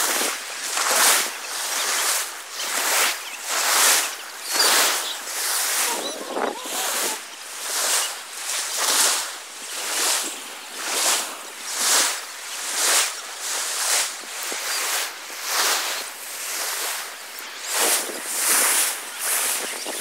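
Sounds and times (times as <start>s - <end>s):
shallow sea water splashing: 0.0s - 20.0s
faint voices of bathers: 4.0s - 8.2s.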